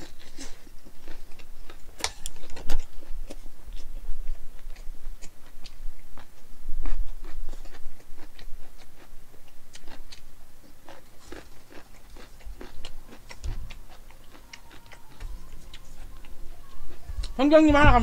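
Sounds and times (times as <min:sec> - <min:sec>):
man chewing with wet mouth clicks: 0:00.0 - 0:17.4
soft low thumps: 0:13.4 - 0:13.9, 0:17.0 - 0:18.0.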